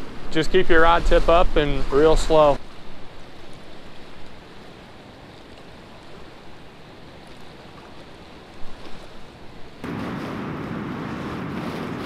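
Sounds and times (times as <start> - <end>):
river water flowing: 1.7 - 10.0.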